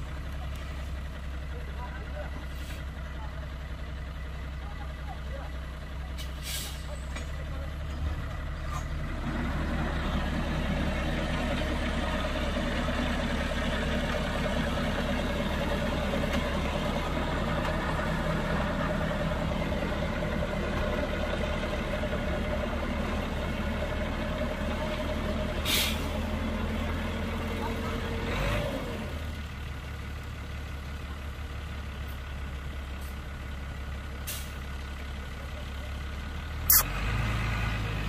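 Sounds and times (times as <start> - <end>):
diesel truck engine rumbling: 0.0 - 38.0
short sharp hiss: 36.7 - 36.9.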